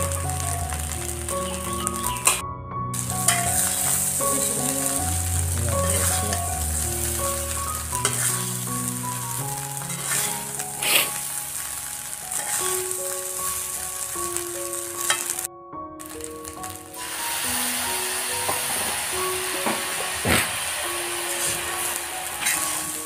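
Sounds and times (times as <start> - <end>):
rice sizzling in a metal pan: 0.0 - 2.4, 3.0 - 23.0
spatula scraping a pan: 8.0 - 8.9, 9.8 - 11.3, 12.3 - 13.0, 22.4 - 22.8.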